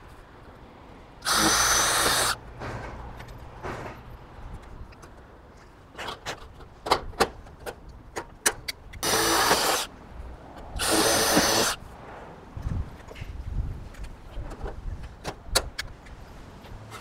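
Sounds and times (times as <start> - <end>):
impact driver bursts: 1.2 - 2.4, 9.0 - 9.9, 10.8 - 11.8.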